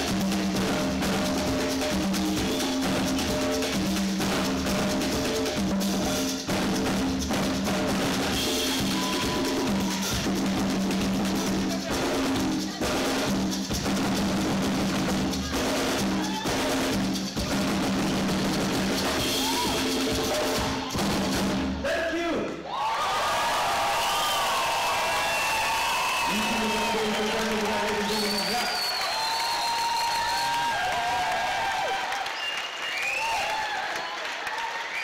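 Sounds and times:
live band playing: 0:00.0 - 0:21.9
drum kit and hand percussion: 0:00.0 - 0:22.6, 0:23.6 - 0:35.0.

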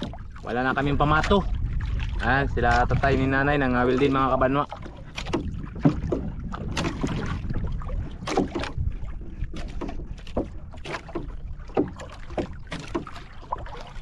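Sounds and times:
low rumble: 0:00.0 - 0:10.7
water slapping against hull: 0:00.0 - 0:14.0.

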